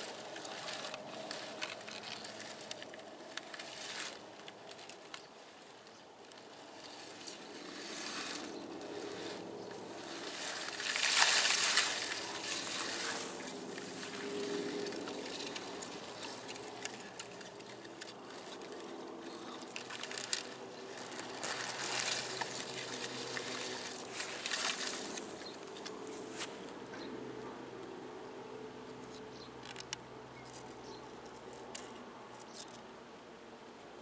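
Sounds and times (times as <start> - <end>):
grass and leaves rustling: 0.0 - 27.2.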